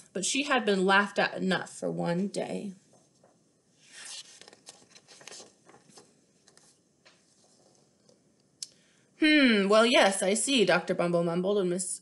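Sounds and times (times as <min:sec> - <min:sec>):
paper page turning: 0:03.9 - 0:07.9.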